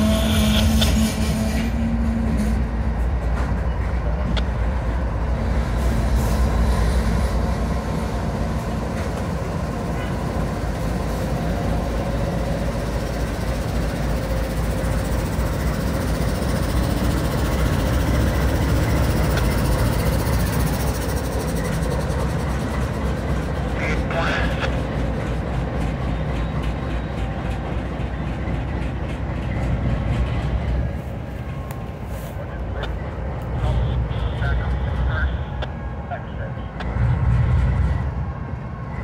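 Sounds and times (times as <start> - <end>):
freight train rumbling: 0.0 - 39.0.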